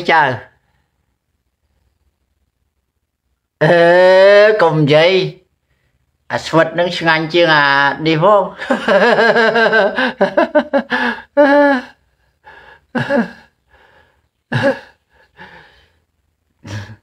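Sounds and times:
man laughing: 8.4s - 13.9s, 14.5s - 15.6s, 16.6s - 17.0s.

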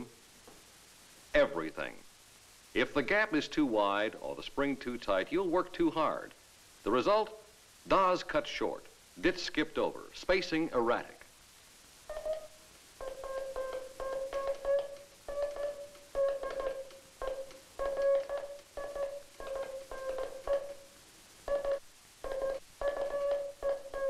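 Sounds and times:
morse code beeping tone: 12.1s - 20.8s, 21.5s - 24.0s.

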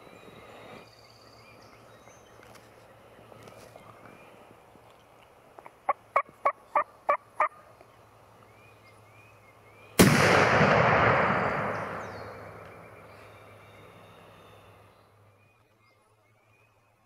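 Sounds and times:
shotgun blast echoing: 10.0s - 13.0s.

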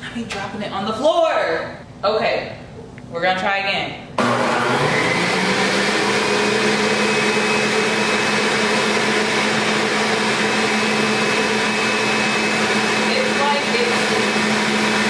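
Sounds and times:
juicer motor whining: 4.2s - 15.0s.

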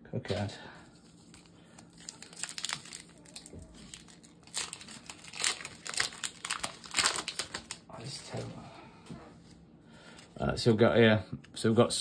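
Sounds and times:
foil wrapper crinkling and tearing: 0.9s - 8.4s.

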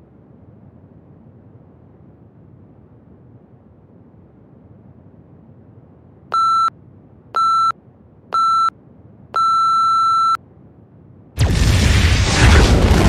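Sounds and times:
countdown timer beeps: 6.4s - 6.7s, 7.4s - 7.7s, 8.4s - 8.7s, 9.4s - 10.4s
loud explosion: 11.4s - 13.0s.

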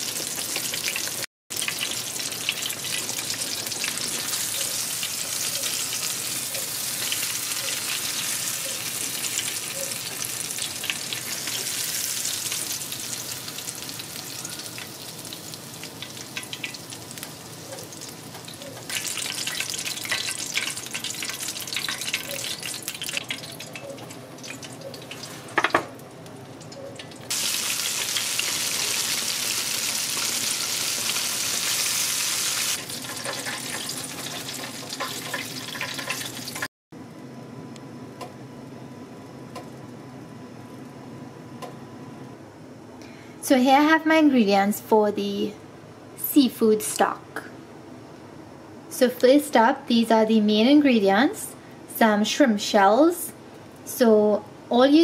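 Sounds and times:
fish frying in oil: 0.0s - 25.8s, 27.0s - 36.7s.

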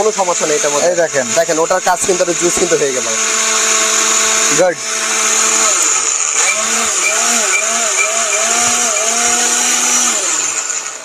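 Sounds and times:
blender motor running: 0.0s - 11.0s.

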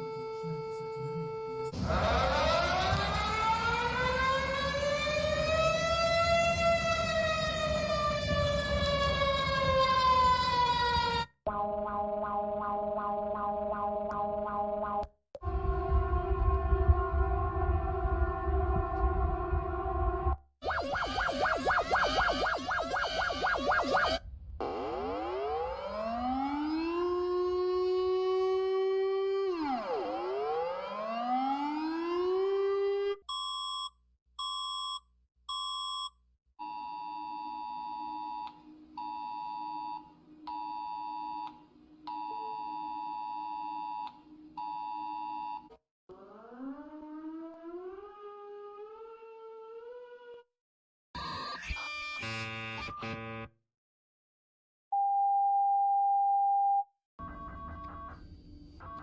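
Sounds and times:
warning siren wailing: 0.0s - 33.2s, 46.1s - 50.5s.

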